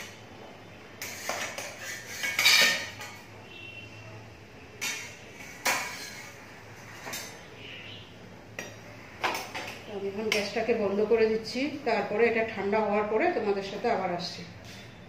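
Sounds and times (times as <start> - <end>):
steel cookware clanking and scraping: 0.0 - 0.3, 0.9 - 3.3, 4.7 - 7.5, 8.6 - 10.6, 14.6 - 15.0.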